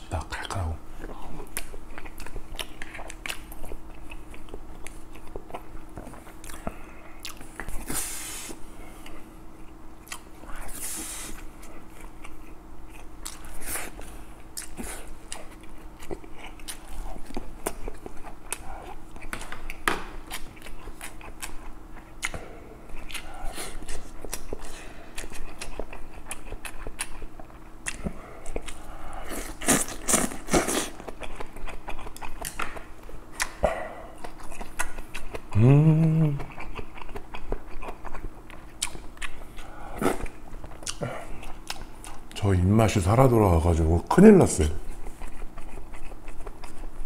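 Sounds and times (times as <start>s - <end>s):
wet chewing and lip smacks: 0.3s - 8.0s, 9.0s - 10.6s, 11.4s - 35.6s, 36.4s - 42.4s, 44.8s - 47.0s
person humming: 35.5s - 36.6s.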